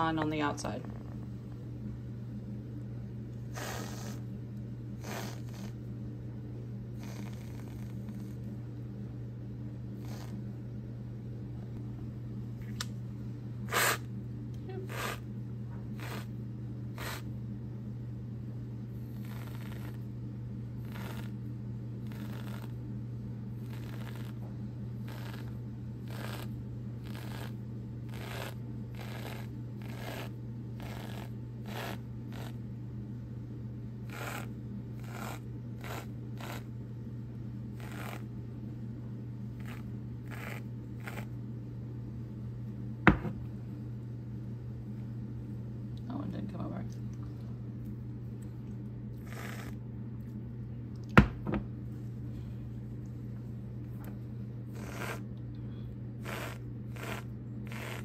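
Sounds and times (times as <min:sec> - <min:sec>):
steady low hum: 0:00.0 - 0:58.0
aerosol can hissing spurts: 0:05.0 - 0:05.7, 0:13.7 - 0:14.0, 0:14.9 - 0:15.2, 0:16.0 - 0:16.3, 0:17.0 - 0:17.2, 0:28.1 - 0:32.5, 0:37.8 - 0:38.2, 0:39.6 - 0:41.2, 0:54.8 - 0:55.2, 0:56.2 - 0:58.0.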